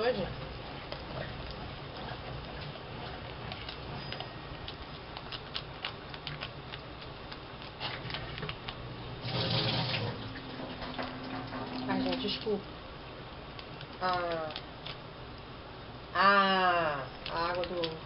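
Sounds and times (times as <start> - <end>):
washing machine pump hum: 0.0 - 18.0
water draining: 9.2 - 12.5.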